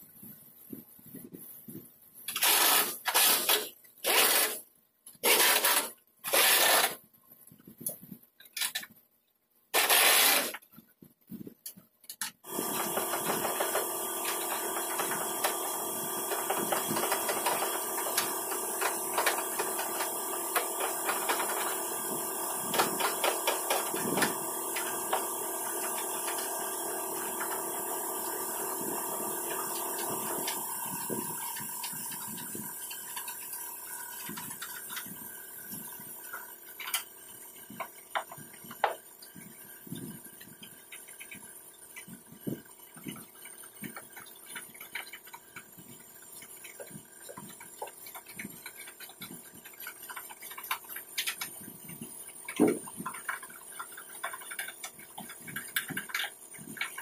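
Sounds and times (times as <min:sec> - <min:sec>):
machine hum with hiss: 0:02.3 - 0:04.6, 0:05.2 - 0:07.0, 0:09.8 - 0:10.6, 0:12.4 - 0:57.0
pneumatic impact wrench bursts: 0:02.3 - 0:07.0, 0:09.7 - 0:10.6, 0:12.4 - 0:57.0.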